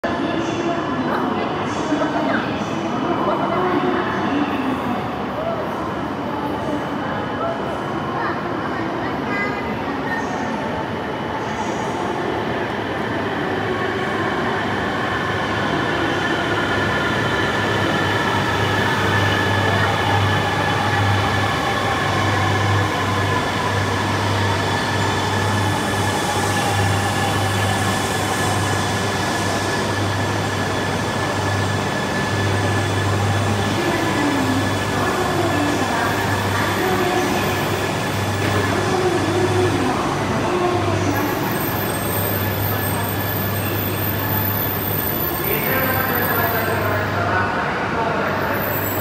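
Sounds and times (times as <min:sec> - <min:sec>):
train braking: 0:15.5 - 0:47.1, 0:48.3 - 0:49.0.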